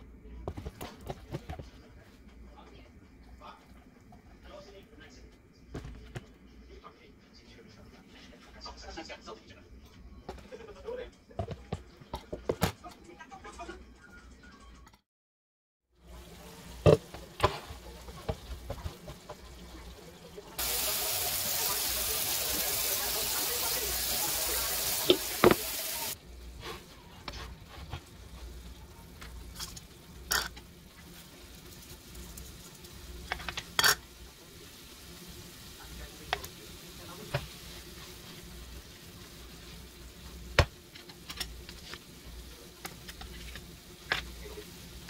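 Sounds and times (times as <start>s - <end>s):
meat sizzling in a skillet: 20.6s - 26.2s, 28.0s - 45.0s
tap water running into sink: 20.6s - 26.2s
pan clattering: 29.5s - 30.6s, 33.2s - 34.1s.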